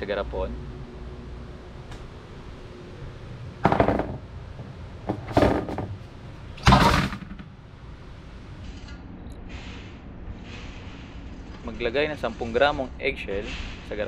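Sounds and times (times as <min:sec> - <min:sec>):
metal tray clanking on wooden table: 0:05.1 - 0:06.0.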